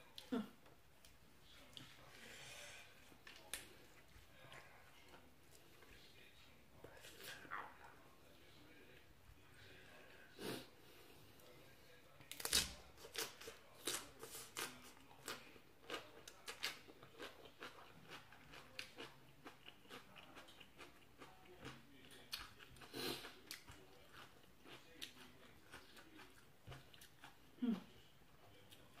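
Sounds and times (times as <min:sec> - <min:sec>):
crunchy chewing of raw vegetables: 0:12.3 - 0:27.9.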